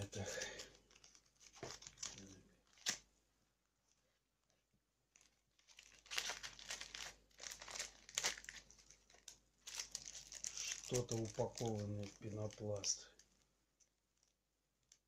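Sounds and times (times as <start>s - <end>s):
packet wrapping crinkling: 0.1s - 3.0s, 5.1s - 13.4s.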